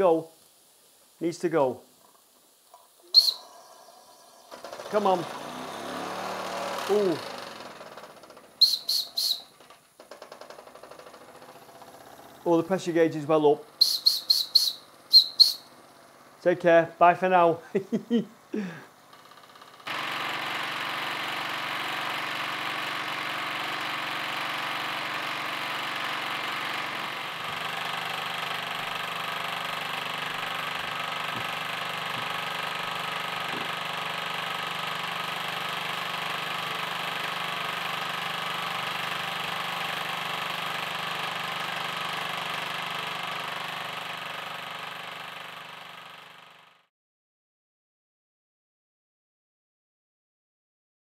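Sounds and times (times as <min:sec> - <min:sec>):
model steam engine running: 0:03.2 - 0:15.6, 0:18.6 - 0:46.8.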